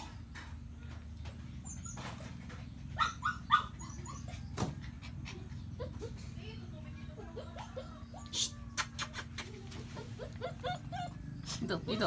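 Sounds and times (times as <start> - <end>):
puppy whimpering: 1.6 - 6.3, 7.1 - 12.0.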